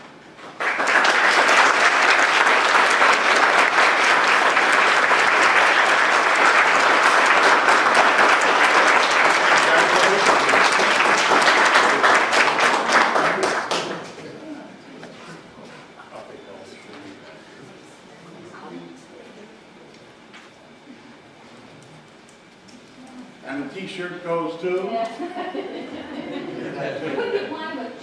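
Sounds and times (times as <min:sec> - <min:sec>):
people applauding: 0:00.4 - 0:14.4.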